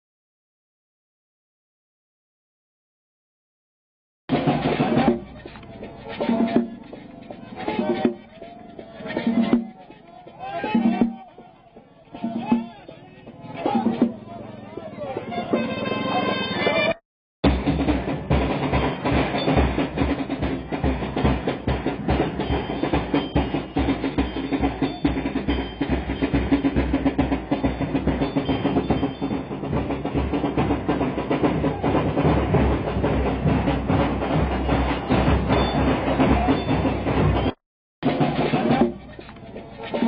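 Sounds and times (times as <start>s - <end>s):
fast drum percussion music: 4.3s - 11.5s, 12.1s - 16.1s, 17.4s - 40.0s.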